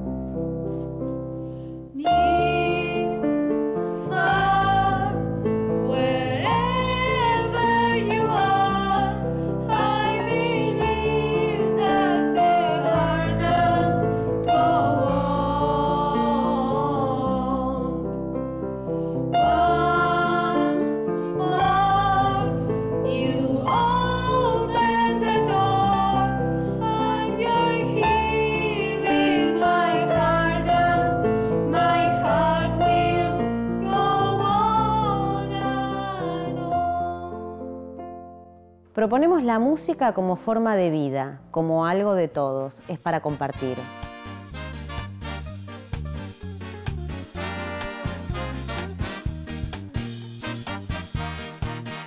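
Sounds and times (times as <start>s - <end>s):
piano chords: 0.0s - 40.8s
women singing with vibrato: 2.0s - 3.2s, 4.0s - 5.2s, 5.8s - 18.1s, 19.4s - 37.6s.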